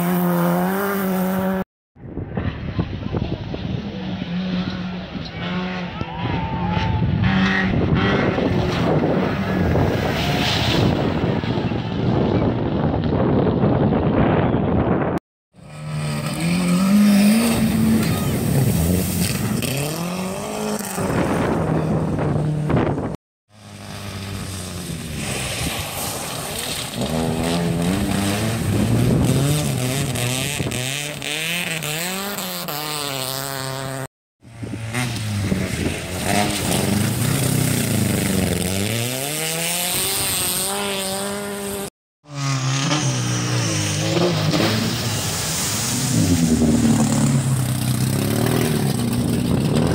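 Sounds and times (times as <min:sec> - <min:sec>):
rally car engines revving: 0:00.0 - 0:01.6, 0:02.4 - 0:13.8, 0:15.6 - 0:49.9
water splashing: 0:15.7 - 0:20.8, 0:23.6 - 0:30.0, 0:35.6 - 0:38.8, 0:43.1 - 0:49.4.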